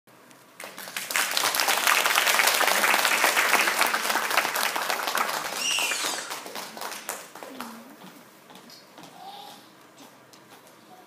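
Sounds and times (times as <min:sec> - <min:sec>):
audience applauding: 0:00.6 - 0:08.0.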